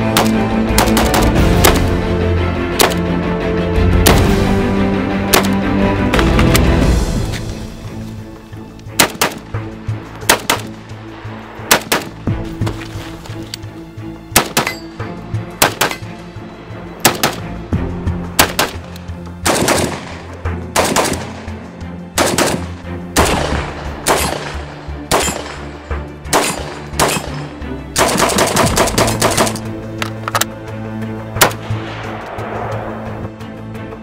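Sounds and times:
background music: 0.0 - 34.0
rifle gunshots: 9.0 - 9.4, 10.3 - 10.7, 11.7 - 12.2, 15.6 - 16.0, 17.0 - 17.5, 18.4 - 21.4, 22.2 - 25.7, 26.3 - 27.4, 28.0 - 29.6.

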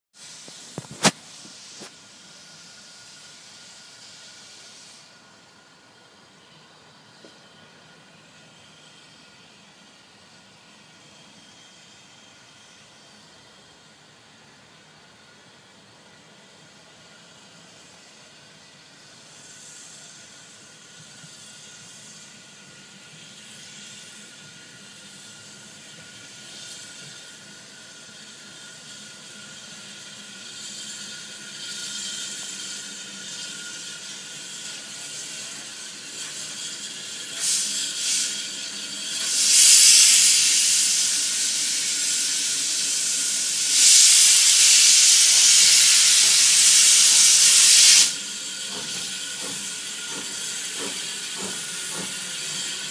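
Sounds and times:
loud steam hissing: 0.2 - 52.9
short steam surges: 0.2 - 52.9
steam locomotive running: 0.2 - 52.9.

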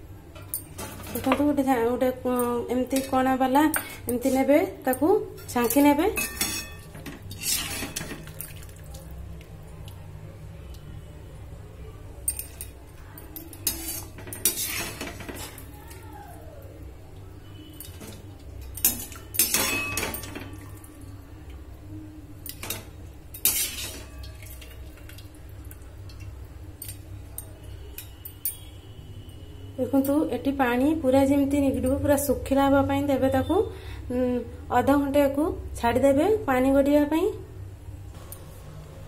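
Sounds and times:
metal spoon clinking on pot: 0.3 - 1.6, 2.2 - 8.6, 12.2 - 15.8, 17.6 - 20.8, 22.4 - 25.2, 26.1 - 28.8.

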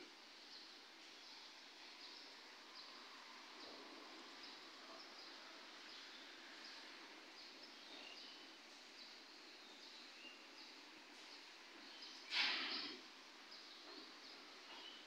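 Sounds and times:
faint background hiss: 0.0 - 15.0.

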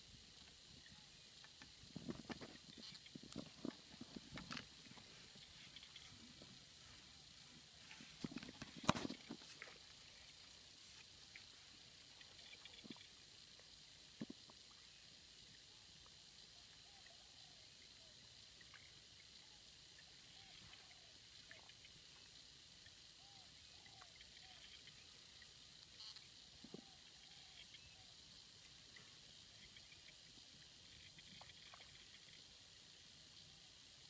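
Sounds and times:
faint outdoor hiss: 0.0 - 34.0
faint short arching calls: 2.7 - 6.4.

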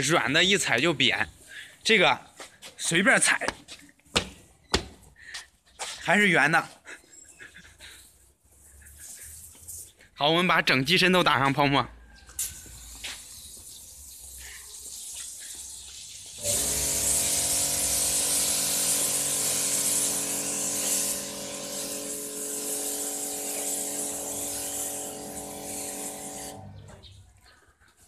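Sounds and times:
high-pressure spray gun hissing: 12.4 - 26.7
pump humming: 16.4 - 26.7.

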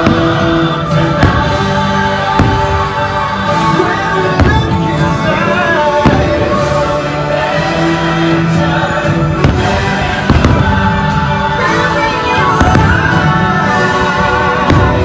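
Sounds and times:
firework bangs: 0.0 - 8.1, 9.0 - 15.0
loud music with sustained notes: 0.0 - 15.0.

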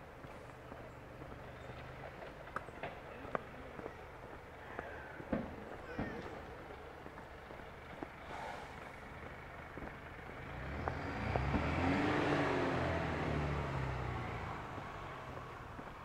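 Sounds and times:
motor vehicle passing by: 6.3 - 16.0.

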